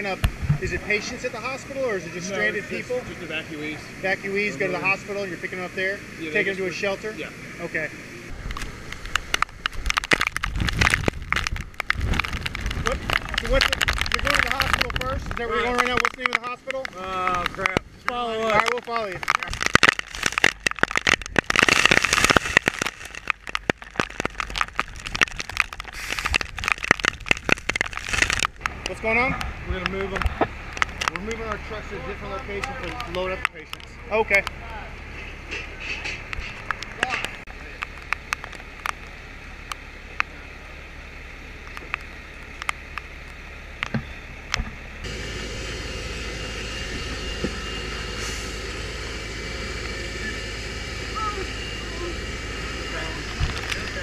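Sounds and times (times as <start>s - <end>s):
truck engine rumbling: 0.0s - 54.0s
hiss: 25.9s - 26.4s, 45.1s - 50.6s.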